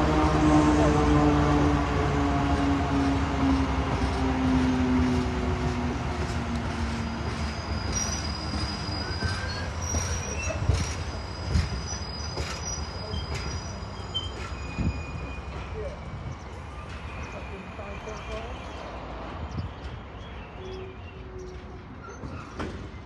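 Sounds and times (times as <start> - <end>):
diesel locomotive engine: 0.0 - 23.0
faint wheel squeal: 7.0 - 16.0.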